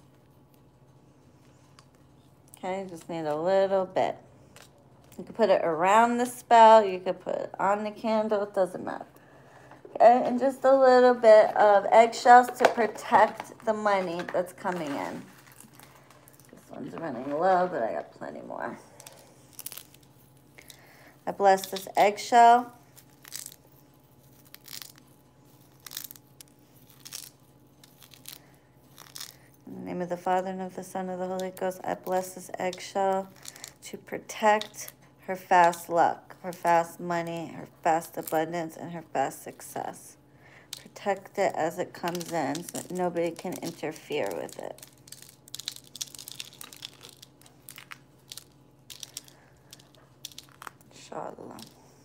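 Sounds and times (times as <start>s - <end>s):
eggshell crunching: 12.2s - 17.3s, 18.8s - 29.7s, 31.3s - 38.8s, 40.5s - 51.8s.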